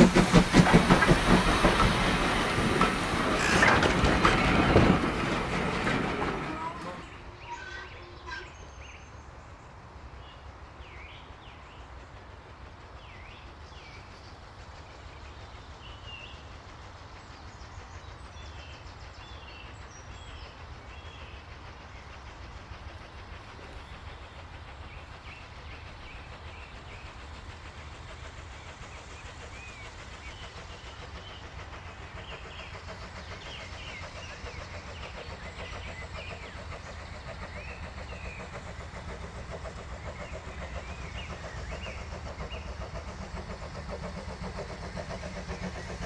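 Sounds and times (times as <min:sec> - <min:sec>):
steam locomotive rumble: 0:00.0 - 0:46.0
birds chirping: 0:13.1 - 0:46.0.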